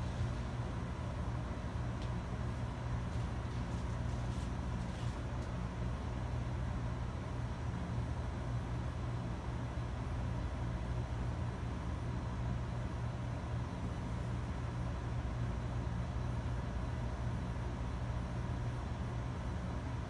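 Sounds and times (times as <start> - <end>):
fan noise: 0.0 - 20.0.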